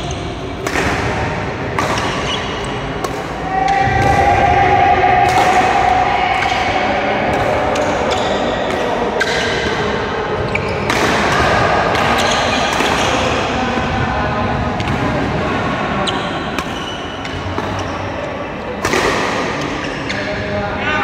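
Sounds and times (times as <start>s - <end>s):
sports hall background noise: 0.0s - 21.0s
racket striking shuttlecock: 0.6s - 4.4s, 10.8s - 13.5s, 16.4s - 17.9s, 18.8s - 19.8s.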